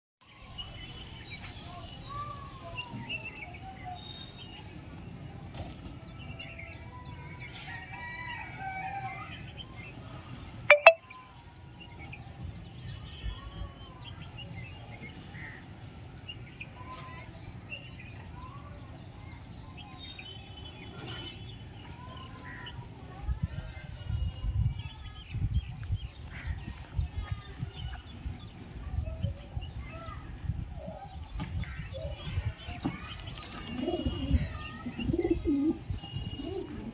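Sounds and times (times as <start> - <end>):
high bird chirps: 10.7 - 11.1.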